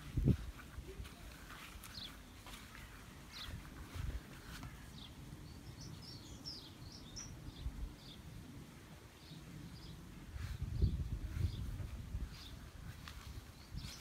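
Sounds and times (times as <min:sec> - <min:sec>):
small bird chirping: 0:04.9 - 0:08.3, 0:13.2 - 0:14.0.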